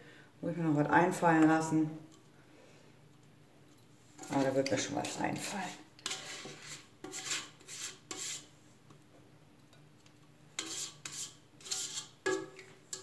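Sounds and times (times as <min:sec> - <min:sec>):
spatula scraping metal bowl: 0:04.2 - 0:08.5, 0:10.6 - 0:13.0.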